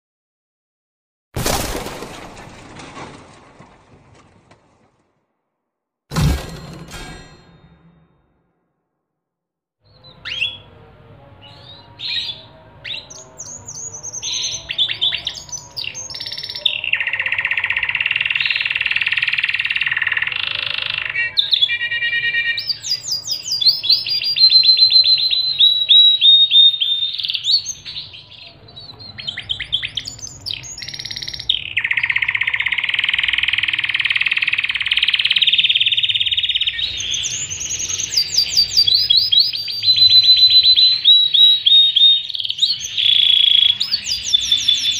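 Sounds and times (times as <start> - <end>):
canary singing trills: 9.9 - 44.9.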